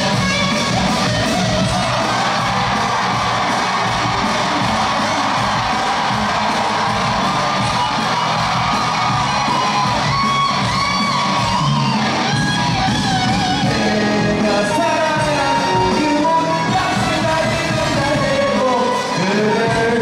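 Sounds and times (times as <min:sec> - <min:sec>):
crowd shouting and whooping: 0:00.0 - 0:20.0
live pop music with singer: 0:00.0 - 0:20.0.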